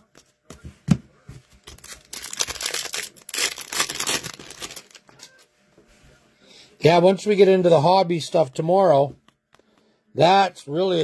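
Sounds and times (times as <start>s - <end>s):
wrapper tearing and crinkling: 1.6s - 5.3s.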